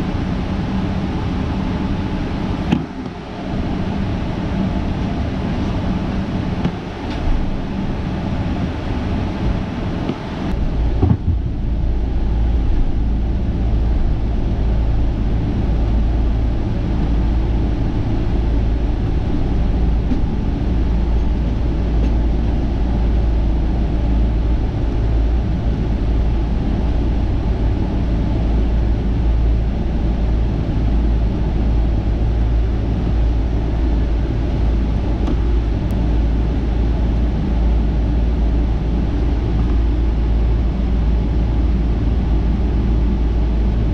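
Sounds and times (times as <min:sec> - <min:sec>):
jet engines roaring at takeoff: 0:00.0 - 0:43.9
brief knock: 0:11.0 - 0:11.5.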